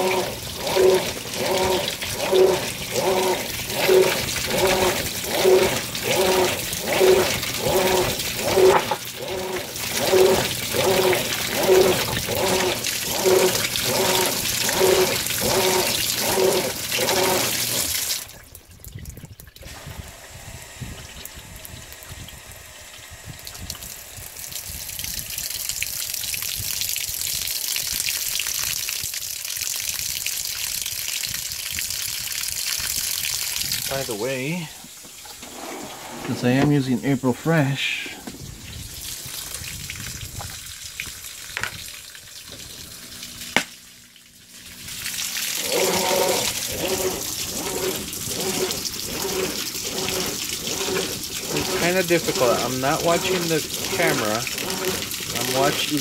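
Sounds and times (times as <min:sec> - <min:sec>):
water spraying in pulses: 0:00.0 - 0:18.4, 0:44.5 - 0:56.0
water stream pouring into drum: 0:00.0 - 0:56.0.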